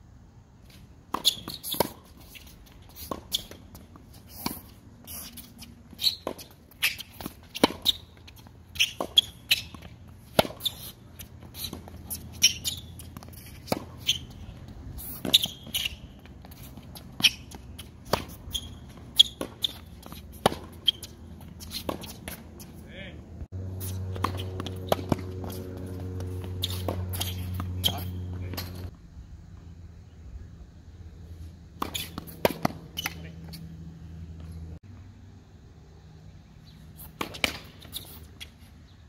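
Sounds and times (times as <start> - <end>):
tennis shoes squeaking: 0.6 - 28.9, 31.3 - 34.8, 36.6 - 39.0
tennis ball bounces: 1.1 - 22.8, 23.8 - 28.9, 31.8 - 33.7, 37.0 - 38.6.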